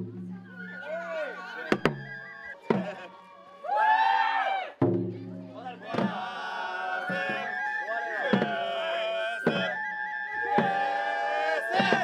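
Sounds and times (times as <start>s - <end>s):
bamboo flute with trills: 0.0s - 4.0s, 5.6s - 12.0s
drum strikes: 2.6s - 2.9s, 4.8s - 6.4s, 8.3s - 8.7s, 9.4s - 9.8s, 10.4s - 11.0s, 11.7s - 12.0s
festival music: 4.8s - 12.0s.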